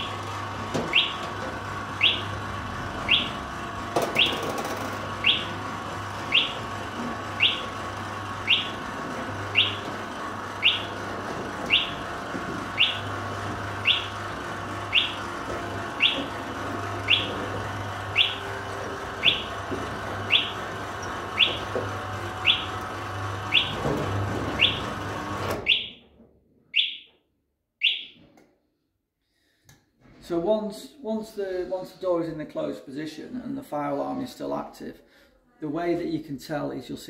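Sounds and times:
roller shutter motor hum: 0.0 - 26.0
fire alarm sounder chirping: 0.9 - 1.3, 1.9 - 2.4, 3.0 - 3.5, 4.1 - 7.8, 8.4 - 10.0, 10.6 - 12.1, 12.7 - 16.4, 17.0 - 21.8, 22.4 - 23.9, 24.6 - 25.0, 25.6 - 26.1, 26.7 - 27.2, 27.8 - 28.2.

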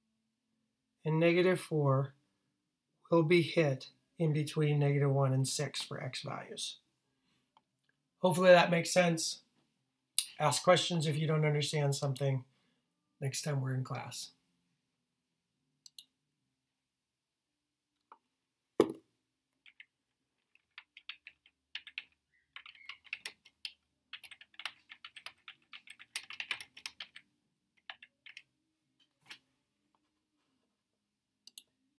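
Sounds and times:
keyboard typing: 19.6 - 27.2, 27.8 - 28.5.

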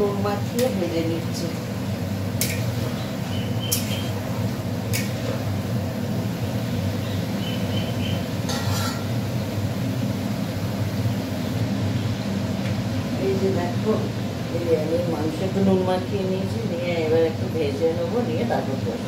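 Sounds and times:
meat sizzling in a wok: 0.0 - 19.0
metal utensils clattering: 8.5 - 9.1.

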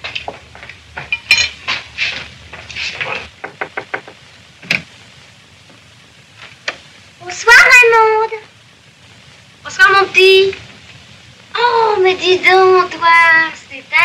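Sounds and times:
cutlery and plates clinking: 1.0 - 1.8.

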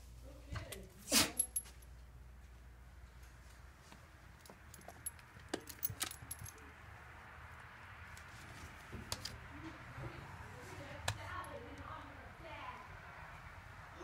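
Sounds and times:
metallic jingling and clicking: 1.4 - 1.9, 4.4 - 6.7.

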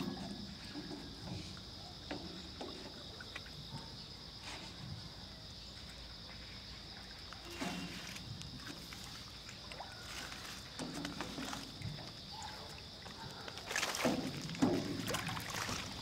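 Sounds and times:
insects chirring: 0.0 - 16.0
feet knocking in metal boat: 14.1 - 16.0.

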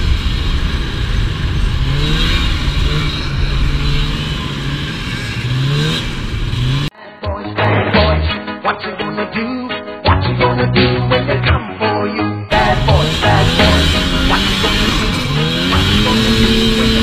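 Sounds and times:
snowmobile engine revving: 0.0 - 6.9, 12.5 - 17.0
music: 7.0 - 17.0.

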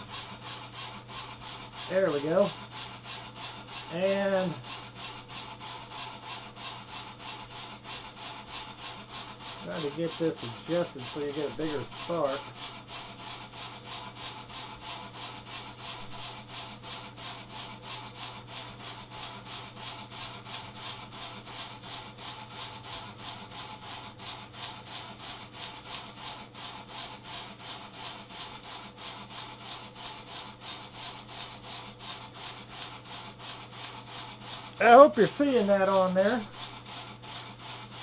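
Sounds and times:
steady low hum: 0.0 - 24.8
motor-driven rotary switch chattering: 9.4 - 12.6, 20.5 - 21.0, 25.6 - 26.4
fine electrical crackling: 34.8 - 36.6.

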